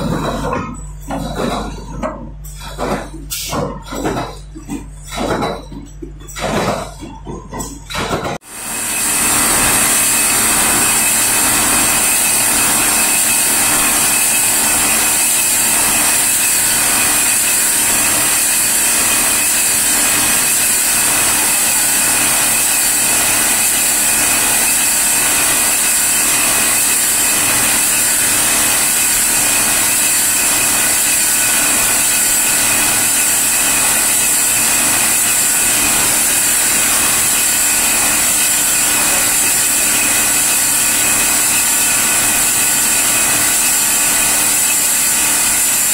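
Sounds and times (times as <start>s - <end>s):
loud high hiss: 8.5s - 15.7s
polishing machine spinning: 8.5s - 45.9s.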